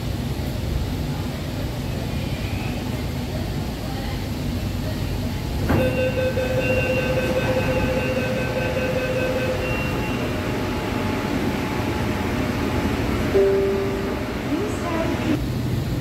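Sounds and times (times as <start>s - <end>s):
train rumble inside carriage: 0.0s - 16.0s
high-pitched whine: 5.7s - 15.3s.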